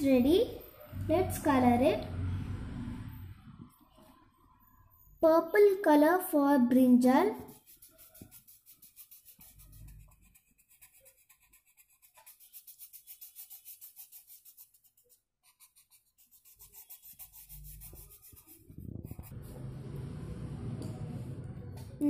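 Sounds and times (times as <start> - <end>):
pencil scratching on paper: 7.3 - 19.5.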